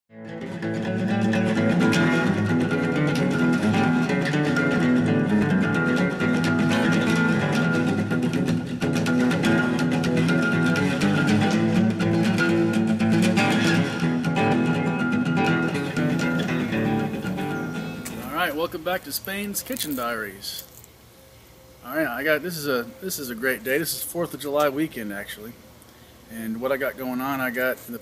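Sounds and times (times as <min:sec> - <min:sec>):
plucked and strummed guitar music: 0:00.1 - 0:18.5.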